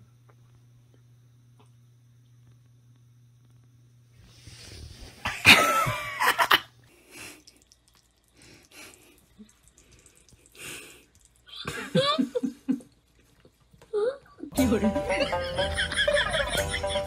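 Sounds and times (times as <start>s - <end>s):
water splashing from faucet: 6.9s - 13.2s.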